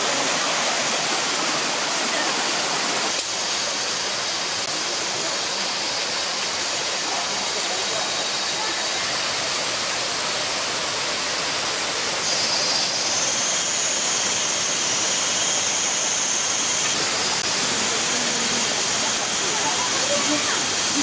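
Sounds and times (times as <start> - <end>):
stream and waterfall rushing: 0.0 - 21.0
high thin insect drone: 0.4 - 21.0.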